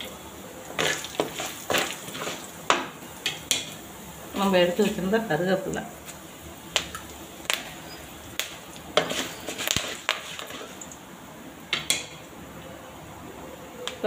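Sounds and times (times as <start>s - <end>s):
oil sizzling: 0.0s - 13.2s
sharp pops and clicks: 6.1s - 10.2s.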